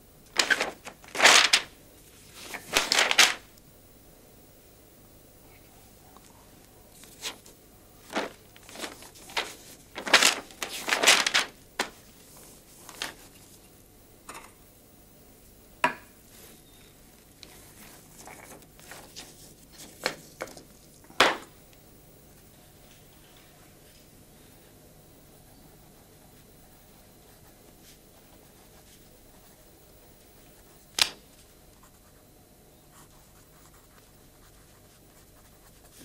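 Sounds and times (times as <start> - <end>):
notebook pages rustling: 0.3 - 3.5, 7.0 - 13.6, 17.4 - 21.4.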